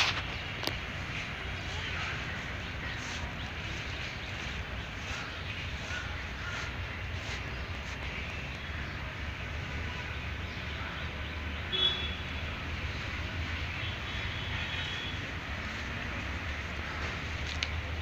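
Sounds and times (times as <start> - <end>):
birds calling: 0.0 - 18.0
low traffic rumble: 0.0 - 18.0.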